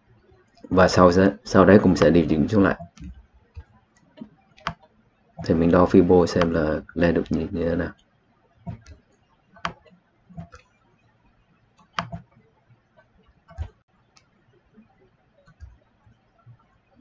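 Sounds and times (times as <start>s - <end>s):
computer mouse clicking: 2.7s - 5.6s, 7.3s - 11.1s, 11.7s - 14.4s, 15.4s - 16.8s.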